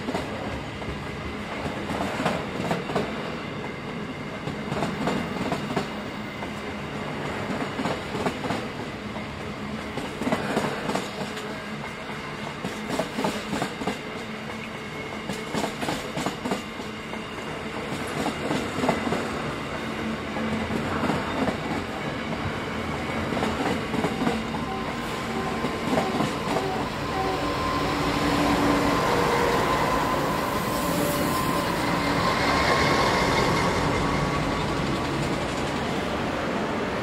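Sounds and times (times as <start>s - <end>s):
diesel locomotive passing: 0.0s - 37.0s
train wheels clacking over rail joints: 9.9s - 16.9s
high whine: 24.5s - 35.2s.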